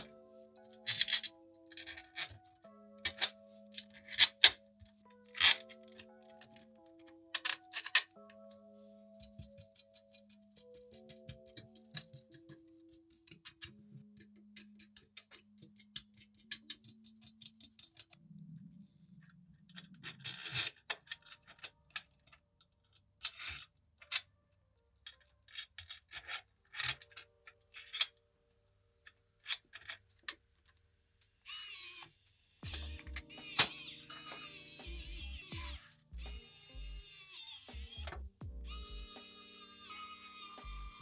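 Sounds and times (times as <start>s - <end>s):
small metal parts clicking: 0.0s - 8.5s, 9.2s - 18.2s, 19.7s - 24.3s, 25.0s - 28.2s, 29.0s - 30.8s
quiet background music: 0.0s - 41.0s.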